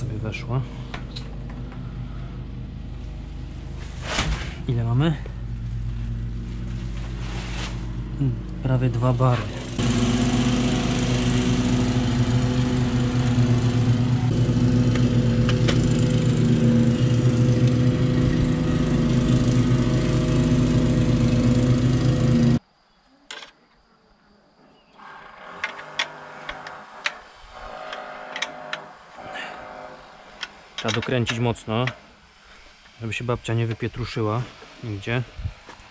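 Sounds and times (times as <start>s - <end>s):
small engine running: 5.2s - 22.6s, 25.0s - 33.0s.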